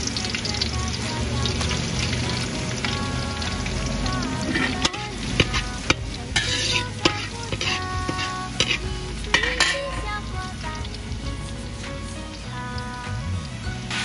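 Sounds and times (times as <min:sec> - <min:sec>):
garlic sizzling in hot oil: 0:00.0 - 0:14.0
metal ladle scraping a wok: 0:04.4 - 0:10.3.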